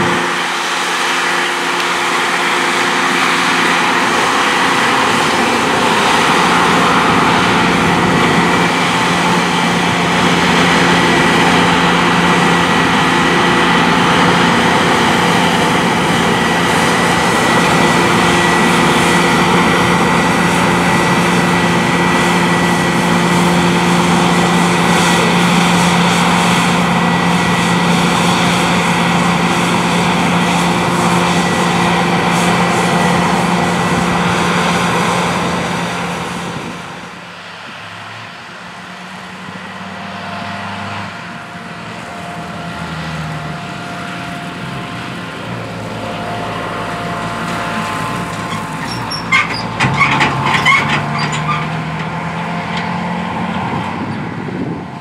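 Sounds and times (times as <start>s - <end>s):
combine harvester engine drone: 0.0s - 55.0s
high machinery whine: 0.0s - 55.0s.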